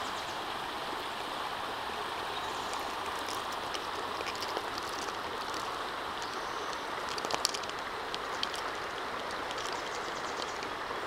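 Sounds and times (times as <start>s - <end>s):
creek rushing over rocks: 0.0s - 11.0s
small clicks and crunches: 2.7s - 10.7s.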